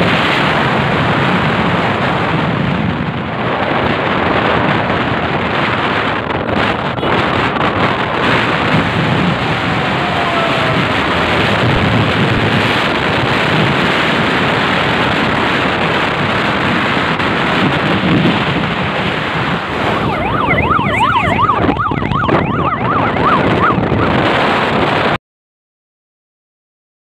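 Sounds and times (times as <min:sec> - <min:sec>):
vehicle road noise: 0:00.0 - 0:25.2
wind on microphone: 0:00.0 - 0:25.2
police sirens yelping: 0:06.6 - 0:15.0, 0:18.4 - 0:25.0.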